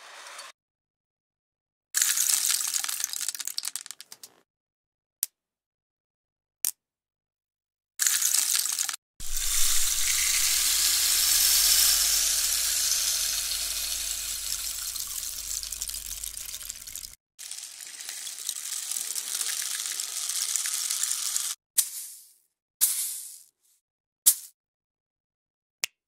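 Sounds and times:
low hum: 0:09.2 - 0:17.2
rain hiss: 0:09.2 - 0:17.2.

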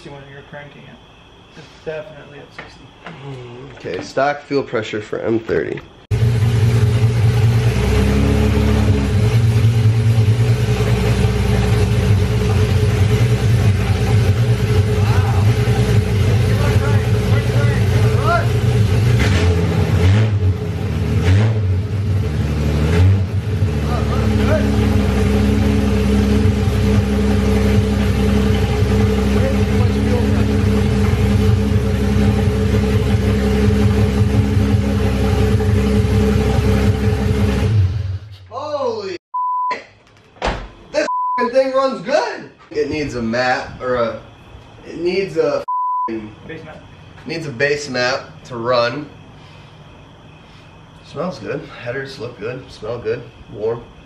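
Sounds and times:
car engine running: 0:06.1 - 0:38.4.

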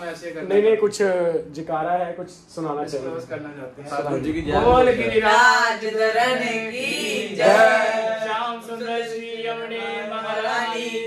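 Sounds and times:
men singing a chant: 0:04.4 - 0:11.0.

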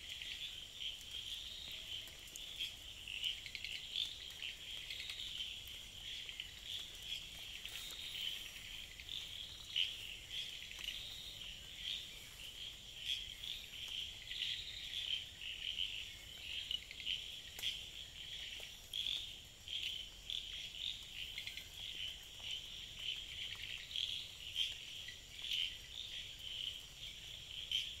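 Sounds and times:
night chorus of calling animals: 0:00.0 - 0:28.0.

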